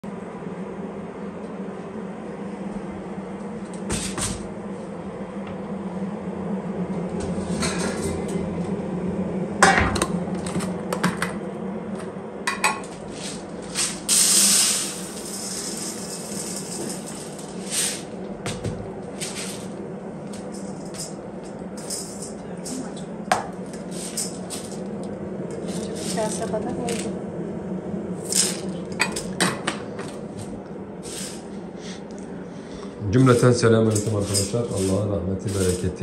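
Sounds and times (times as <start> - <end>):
steady low hum: 0.0 - 36.0
lentils pouring into metal bowl: 13.2 - 18.2, 33.3 - 35.9.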